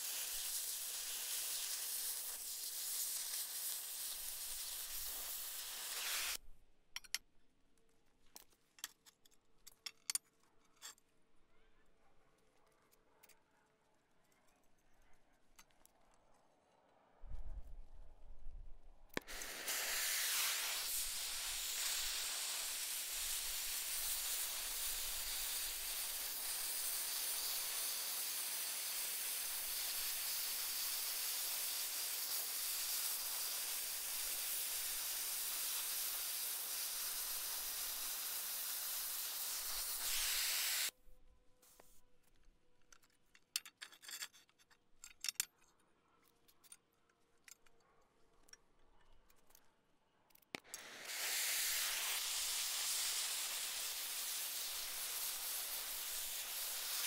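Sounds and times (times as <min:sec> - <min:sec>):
cutting torch hissing: 0:00.0 - 0:06.4, 0:19.2 - 0:40.9, 0:50.6 - 0:57.0.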